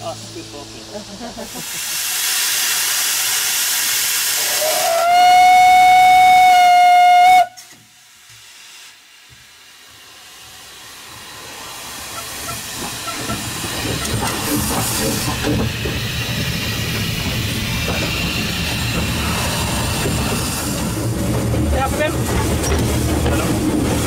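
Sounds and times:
steam hiss: 0:00.0 - 0:24.0
steam whistle: 0:04.3 - 0:07.8
train running noise: 0:07.3 - 0:24.0.

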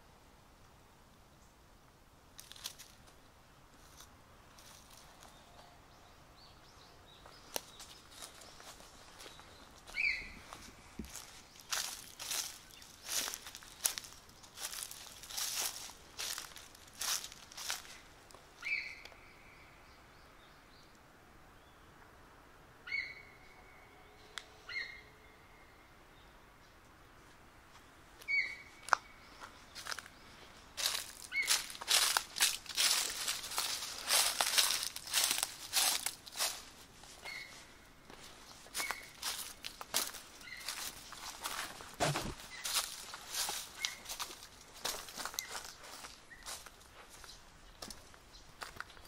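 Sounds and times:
footsteps crunching on dry leaves: 0:02.4 - 0:03.1, 0:03.8 - 0:05.6, 0:07.2 - 0:18.9, 0:28.2 - 0:49.0
faint bird chirps: 0:04.6 - 0:18.0, 0:18.6 - 0:20.9, 0:28.2 - 0:32.1, 0:37.2 - 0:41.3, 0:42.4 - 0:44.4
bird whistling: 0:10.0 - 0:10.4.

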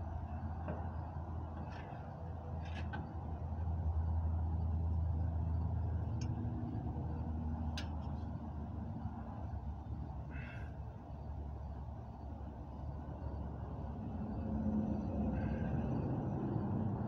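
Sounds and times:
low steady drone: 0:03.8 - 0:17.0.

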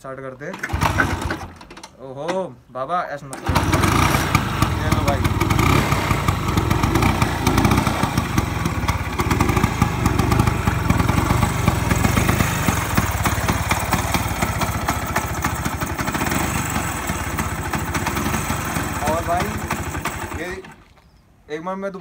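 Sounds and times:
scooter engine idling: 0:03.4 - 0:20.8.

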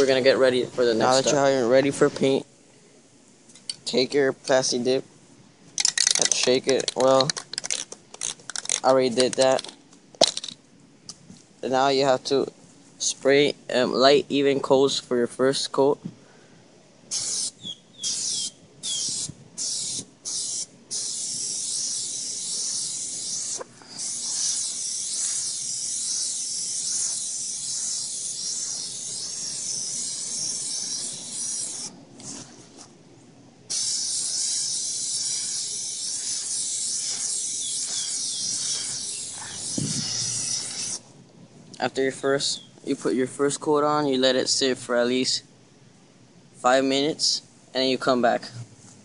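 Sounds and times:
aerosol can spraying hiss: 0:17.1 - 0:32.5, 0:33.7 - 0:41.0.

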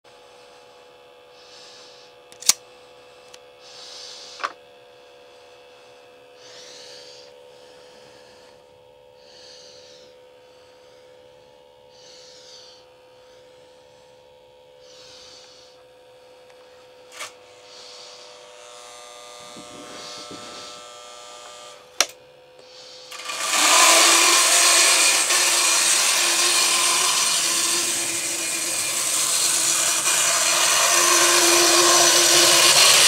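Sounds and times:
toy train electrical hum: 0:00.0 - 0:33.0
soft hissing puffs: 0:14.7 - 0:18.6, 0:19.4 - 0:21.0, 0:22.6 - 0:33.0.

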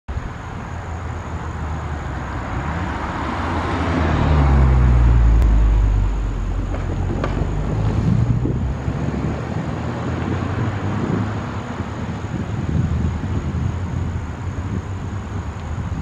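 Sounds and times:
car passing by: 0:00.3 - 0:16.0.

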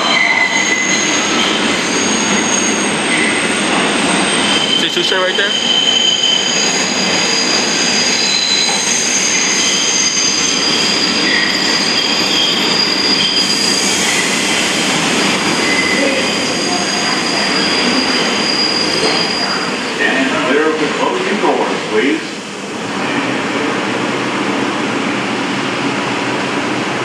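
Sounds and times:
train wheels squealing: 0:00.0 - 0:20.4
subway train running noise: 0:00.0 - 0:27.0.

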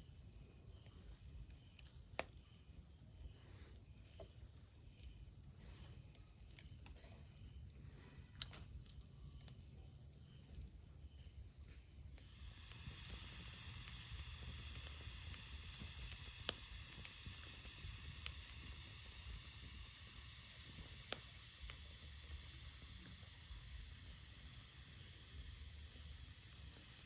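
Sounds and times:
fire hissing: 0:00.0 - 0:27.0
fire crackling and popping: 0:08.3 - 0:10.7, 0:12.0 - 0:27.0.

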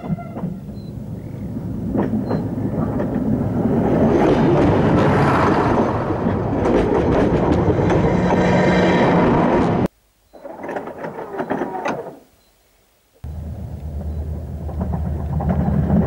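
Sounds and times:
train wheels clattering over rail joint: 0:01.8 - 0:08.8, 0:14.0 - 0:16.0
low hum: 0:13.2 - 0:16.0.

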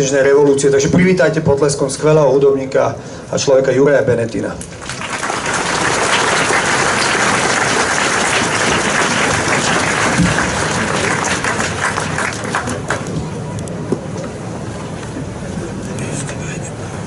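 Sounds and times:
crowd applauding: 0:04.7 - 0:13.2.

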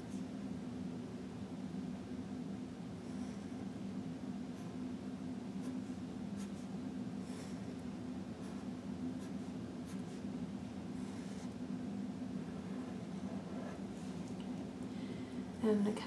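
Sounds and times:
steady low hum: 0:00.0 - 0:16.0
marker scratching on paper: 0:08.4 - 0:10.2.

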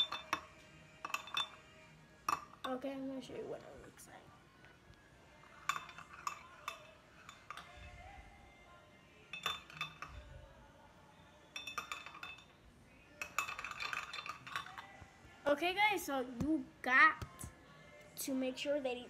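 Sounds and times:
metal spoon clinking ceramic bowl: 0:00.0 - 0:02.8, 0:05.4 - 0:08.0, 0:09.3 - 0:10.3, 0:11.5 - 0:15.0.

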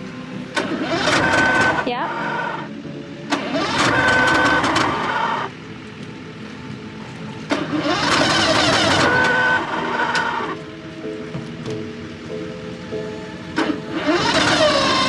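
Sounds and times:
electric starter cranking motor: 0:00.5 - 0:02.7, 0:03.3 - 0:05.5, 0:07.5 - 0:10.6, 0:13.6 - 0:15.0.

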